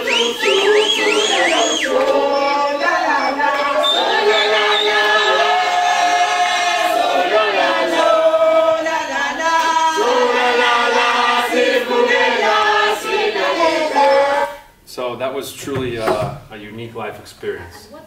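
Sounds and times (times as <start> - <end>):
crowd singing together: 0.0 - 14.7.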